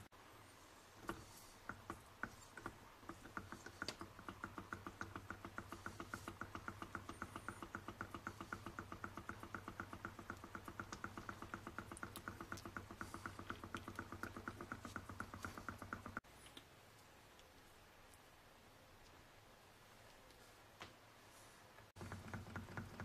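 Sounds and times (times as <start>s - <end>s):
small engine mechanical ticking: 2.6s - 16.2s, 22.0s - 23.0s.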